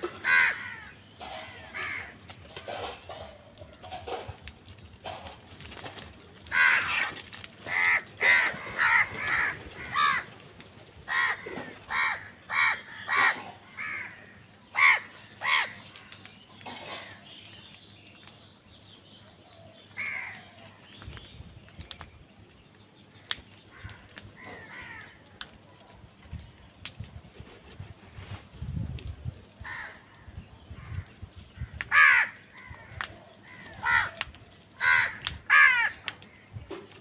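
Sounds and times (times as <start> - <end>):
crows cawing: 0.1 - 4.3, 6.4 - 10.4, 11.1 - 17.2, 20.0 - 20.6, 23.7 - 25.6, 29.6 - 30.2, 30.8 - 36.6.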